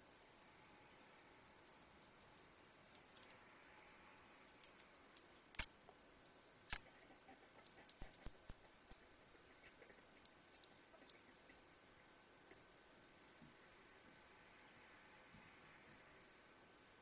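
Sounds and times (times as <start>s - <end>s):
small clicks and ticks: 2.0s - 3.5s, 4.5s - 6.0s, 6.7s - 11.6s, 12.5s - 15.0s.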